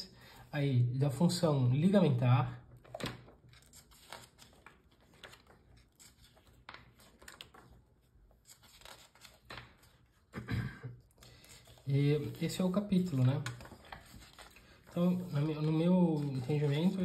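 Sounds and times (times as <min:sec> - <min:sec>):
book pages turning: 0:02.8 - 0:10.4, 0:11.0 - 0:17.0.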